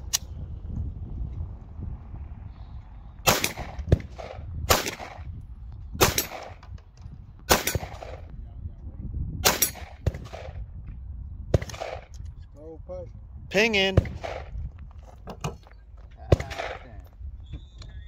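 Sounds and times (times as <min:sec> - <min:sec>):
handgun shots with echo: 0:03.3 - 0:05.2, 0:06.0 - 0:06.6, 0:07.5 - 0:08.2, 0:09.4 - 0:10.6, 0:16.3 - 0:16.9.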